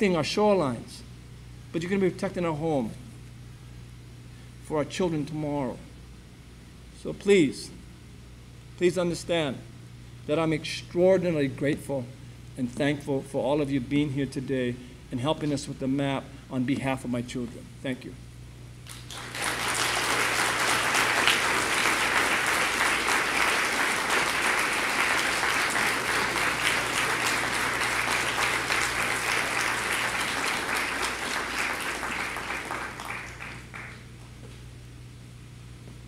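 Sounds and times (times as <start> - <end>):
audience applauding: 18.8 - 34.1.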